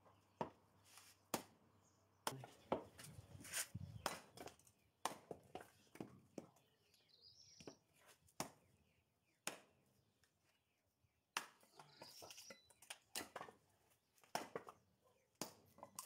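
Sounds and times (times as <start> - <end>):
axe chopping firewood: 1.3 - 1.6, 4.0 - 6.4, 8.3 - 8.7, 9.4 - 9.9, 11.3 - 11.9, 13.0 - 16.0.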